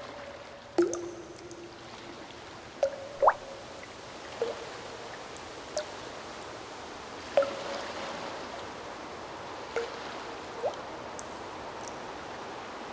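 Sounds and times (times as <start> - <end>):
small water plops and splashes: 0.0 - 6.6, 7.2 - 8.7, 9.7 - 12.4
water lapping: 0.0 - 6.6.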